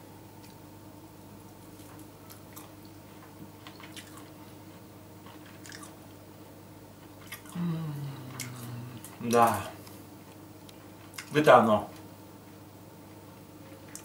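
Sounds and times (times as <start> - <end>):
person chewing: 1.6 - 2.9, 3.6 - 6.0, 7.0 - 11.3
low hum: 6.5 - 10.8.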